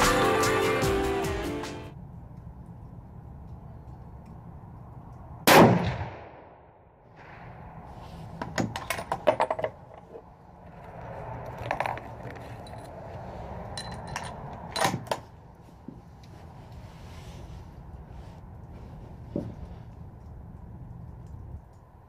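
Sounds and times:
rifle shot: 5.4s - 6.6s.

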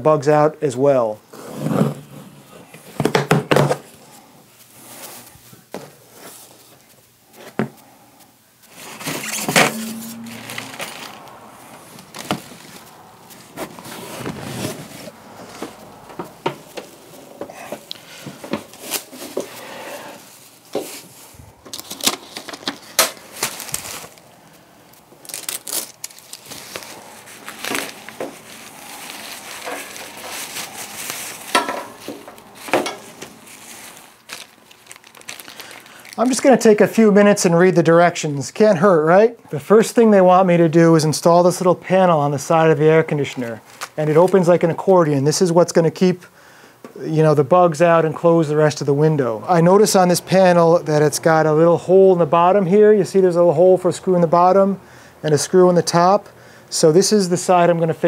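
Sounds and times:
plastic wrapping crinkling: 8.6s - 37.1s, 43.2s - 44.6s.

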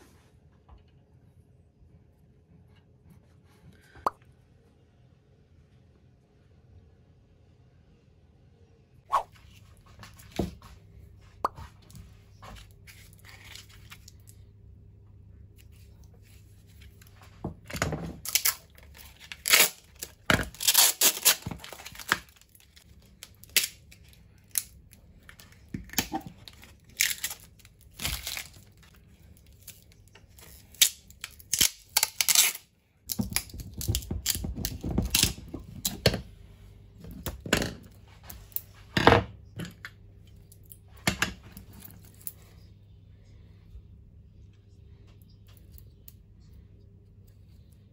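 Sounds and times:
plastic wrapping crinkling and tearing: 18.2s - 35.4s.

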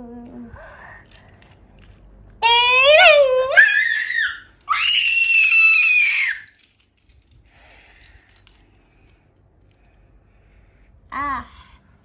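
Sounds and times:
child shrieking: 2.8s - 6.5s.

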